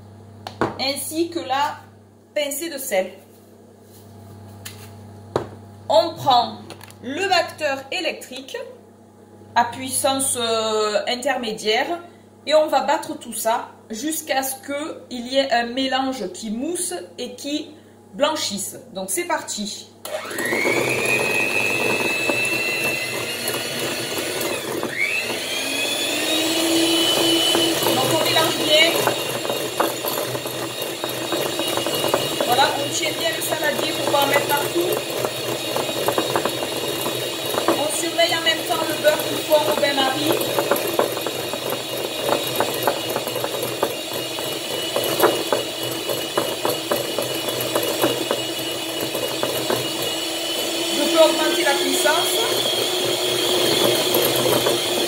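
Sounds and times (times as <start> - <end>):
electric hand mixer whisking: 20.0 - 55.0
beaters clicking in bowl: 20.7 - 25.4, 26.3 - 55.0.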